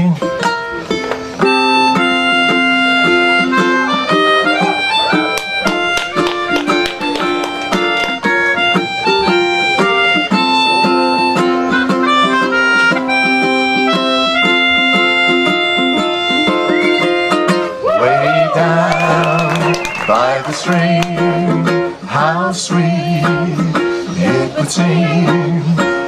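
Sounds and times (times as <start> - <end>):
ukulele strumming chords: 0.0 - 26.0
melodica melody: 0.6 - 17.8.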